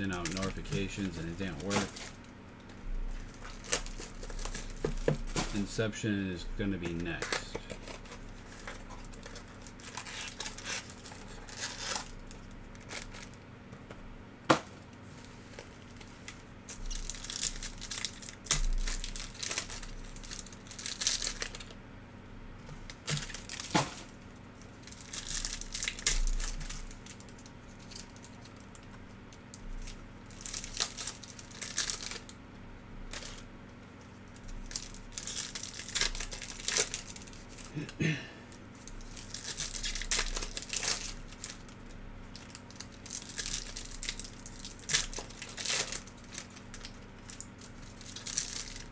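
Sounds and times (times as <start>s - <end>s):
wrappers crinkling and tearing: 0.0s - 5.8s, 6.8s - 13.4s, 14.9s - 21.8s, 22.8s - 32.4s, 33.0s - 48.9s.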